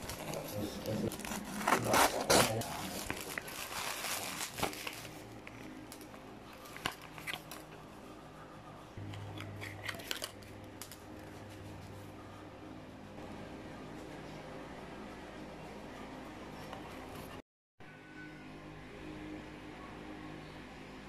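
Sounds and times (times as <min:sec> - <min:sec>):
plastic wrap crinkling: 0:00.0 - 0:07.8
low steady hum: 0:00.0 - 0:21.0.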